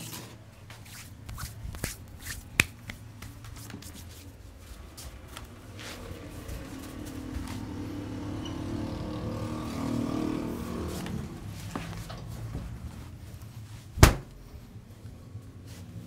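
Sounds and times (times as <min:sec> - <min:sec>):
low engine-like hum: 0:04.4 - 0:16.0
loud sharp smack: 0:14.0 - 0:14.4.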